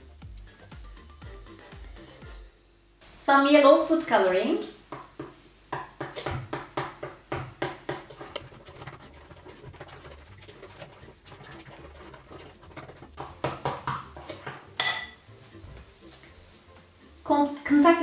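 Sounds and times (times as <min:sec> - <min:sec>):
spatula stirring sticky slime: 0:04.9 - 0:18.0.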